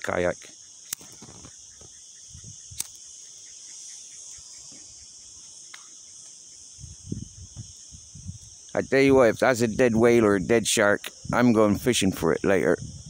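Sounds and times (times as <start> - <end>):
insects chirring: 0.0 - 13.0
sharp click: 0.9 - 1.5, 2.7 - 3.0.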